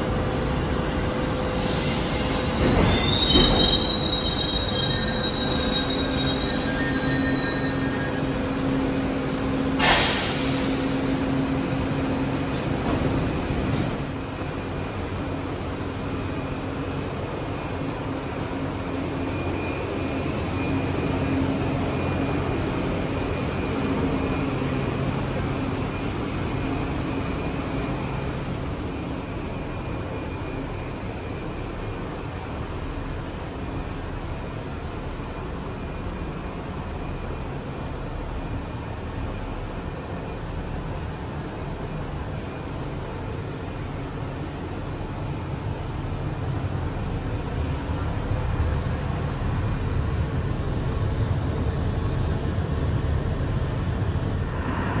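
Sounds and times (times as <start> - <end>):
train humming: 0.0 - 55.0
train wheels squealing: 0.4 - 52.6, 54.1 - 55.0
loud hiss: 9.8 - 11.1.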